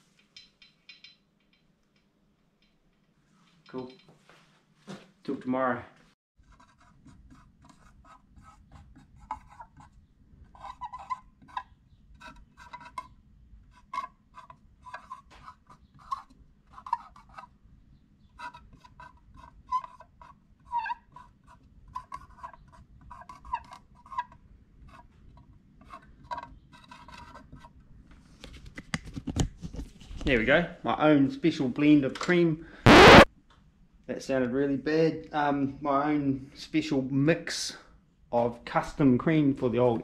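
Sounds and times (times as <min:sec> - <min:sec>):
marker pen scratching on metal: 0:06.4 - 0:10.0, 0:10.6 - 0:13.1, 0:13.7 - 0:17.5, 0:18.4 - 0:24.2.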